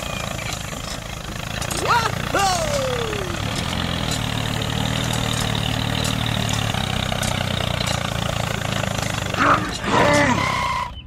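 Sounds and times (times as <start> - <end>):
toy tractor engine running: 0.0 - 11.0
short falling cry: 1.8 - 3.4.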